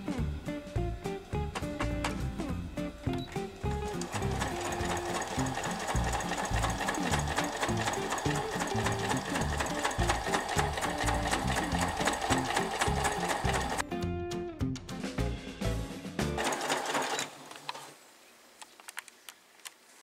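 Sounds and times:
background music: 0.0 - 17.0
sewing machine stitching: 3.7 - 13.8, 16.4 - 17.4.

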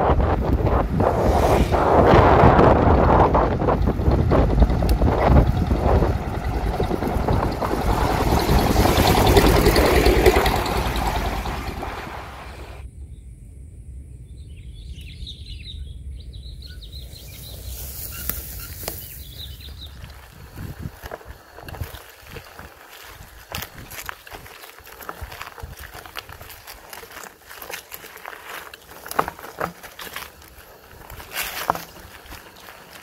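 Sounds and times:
wind rushing over microphone: 0.0 - 12.9, 17.2 - 24.5
small birds chirping: 14.4 - 20.4.

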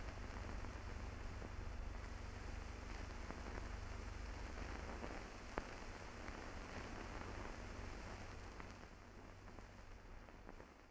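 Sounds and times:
faint crackles: 0.0 - 10.9
film soundtrack hiss: 0.0 - 10.9.

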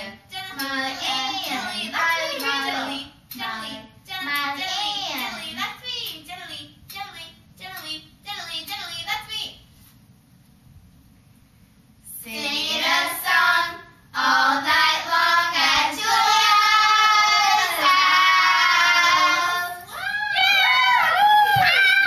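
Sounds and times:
children singing: 12.5 - 19.9.

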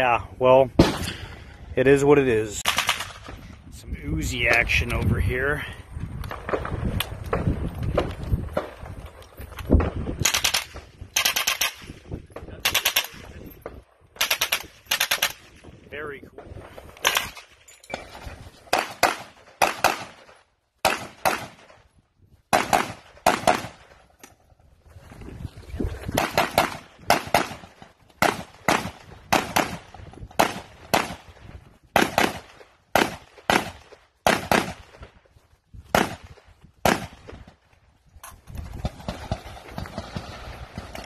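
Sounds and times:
gunshots: 0.8 - 1.4, 2.6 - 3.4, 9.8 - 13.4, 14.2 - 15.6, 17.0 - 21.8, 22.5 - 23.9, 26.1 - 31.4, 32.0 - 35.0, 35.9 - 37.4.

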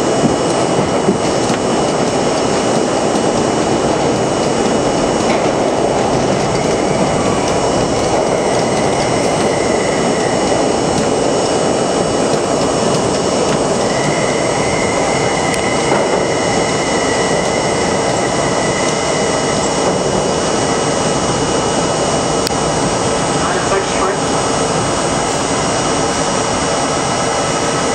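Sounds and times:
train wheels on rail: 0.0 - 27.9.

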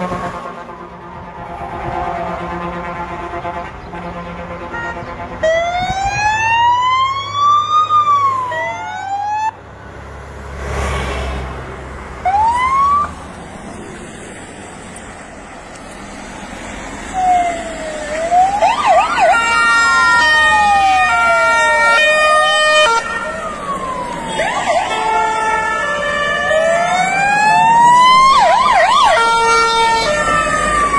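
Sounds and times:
siren wailing: 0.0 - 3.3, 5.4 - 9.6, 12.2 - 13.2, 17.0 - 30.9
two-tone siren: 0.0 - 9.6, 12.2 - 13.2, 17.1 - 30.9
siren whoop: 5.5 - 9.5, 12.2 - 13.1, 17.1 - 30.9
vehicle engine rumbling past: 9.6 - 18.6.

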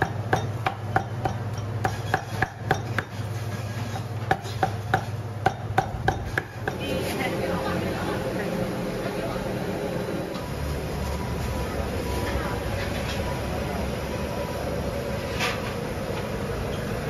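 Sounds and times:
cleaver chopping meat on wood: 0.0 - 3.2, 4.3 - 6.8.

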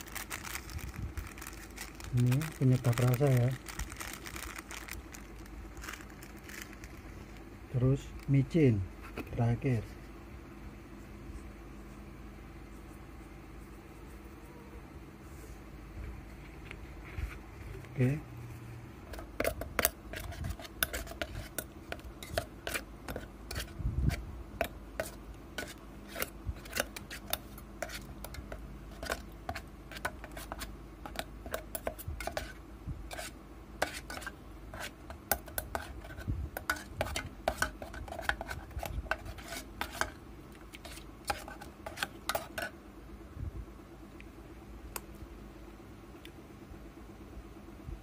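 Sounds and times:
spoon clinking and scraping pot: 40.8 - 42.7.

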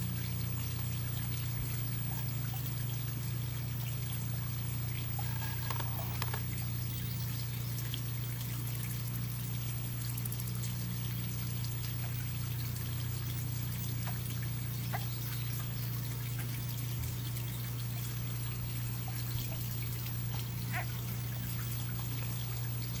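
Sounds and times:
constant low hum: 0.0 - 23.0
water trickling: 0.0 - 23.0
faint ticks: 5.0 - 6.7.

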